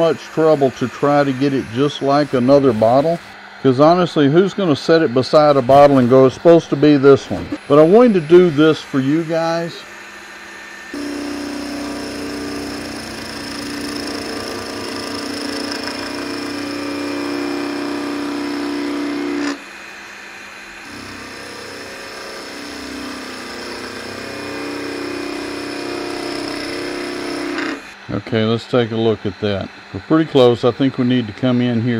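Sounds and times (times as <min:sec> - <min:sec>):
gouge cutting wood on lathe: 0:00.0 - 0:04.0, 0:05.3 - 0:09.9, 0:10.8 - 0:19.8, 0:20.8 - 0:28.0.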